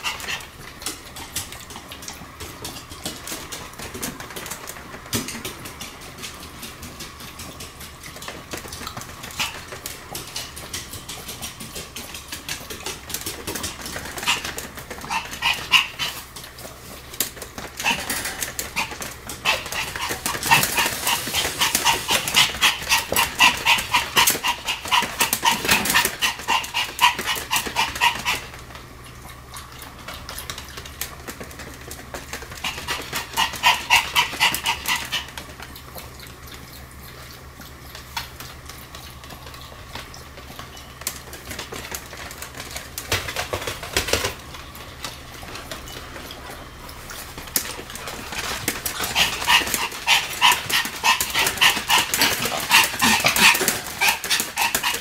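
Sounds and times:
small dog yapping: 0:14.1 - 0:16.3, 0:17.8 - 0:28.5, 0:32.6 - 0:35.4, 0:48.0 - 0:55.0.

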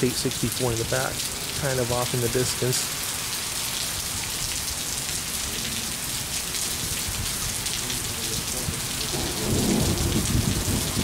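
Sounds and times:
heavy rain on pavement: 0:00.0 - 0:11.0
thunder rumble: 0:08.6 - 0:11.0.

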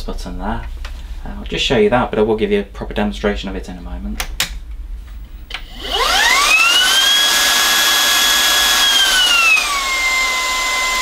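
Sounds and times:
vacuum motor high-pitched whine: 0:05.6 - 0:11.0.

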